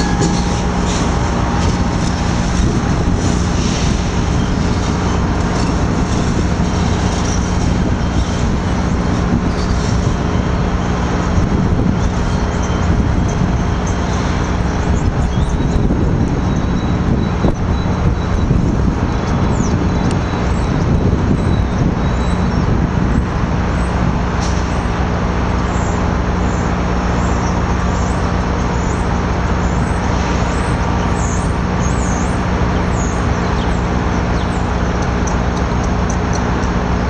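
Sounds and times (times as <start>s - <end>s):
high-pitched wheel squeals: 0.0s - 10.9s
diesel train drone: 0.0s - 37.0s.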